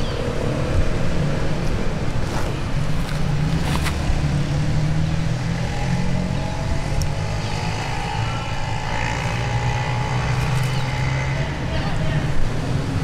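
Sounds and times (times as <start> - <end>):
motor engine drone: 4.0 - 11.7.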